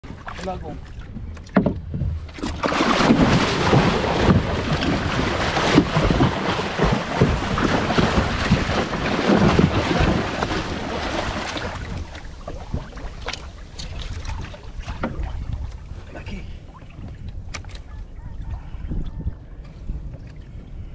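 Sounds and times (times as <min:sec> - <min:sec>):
knocks against hull: 0:01.2 - 0:15.8
fish thrashing and splashing water: 0:02.2 - 0:16.0.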